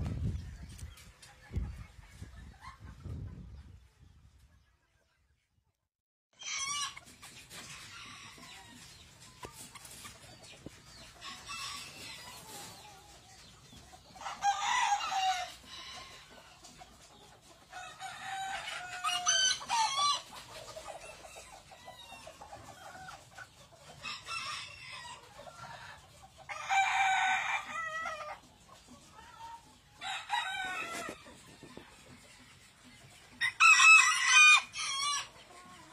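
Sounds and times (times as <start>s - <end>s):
roosters crowing: 6.4s - 8.8s, 11.2s - 12.7s, 14.2s - 16.4s, 17.7s - 20.3s, 24.0s - 25.3s, 26.5s - 28.4s, 30.0s - 31.4s, 33.4s - 35.9s
hens clucking: 6.4s - 35.9s.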